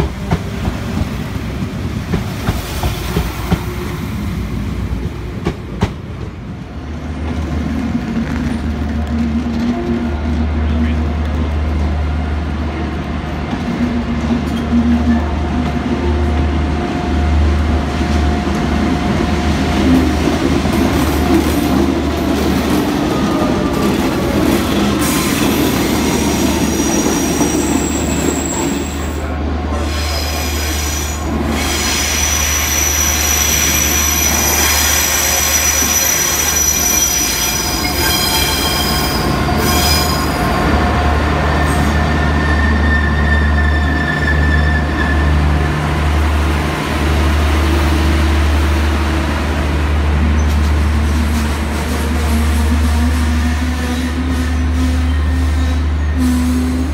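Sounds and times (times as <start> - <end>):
diesel locomotive drone: 0.0 - 56.9
high-pitched wheel squeal: 29.9 - 40.5, 41.6 - 45.4.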